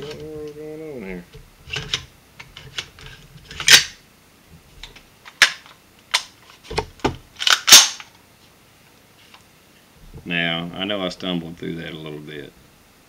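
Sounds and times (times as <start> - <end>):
rifle parts clacking: 1.7 - 4.0, 4.8 - 6.6, 7.4 - 8.2.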